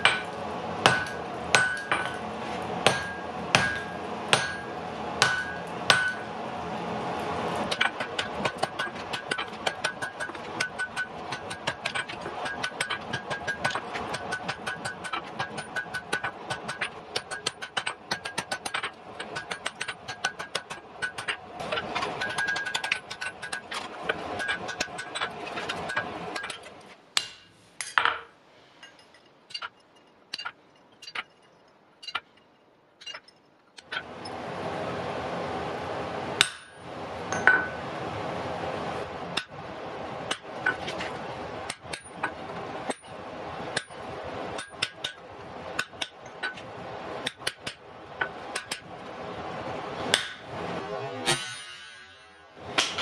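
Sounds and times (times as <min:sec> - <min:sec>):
hammer striking iron on anvil: 0:00.0 - 0:06.4, 0:07.7 - 0:31.4, 0:36.4 - 0:37.8, 0:41.7 - 0:43.1, 0:47.2 - 0:48.8, 0:50.1 - 0:50.5, 0:51.3 - 0:53.0
steady background noise: 0:00.0 - 0:53.0.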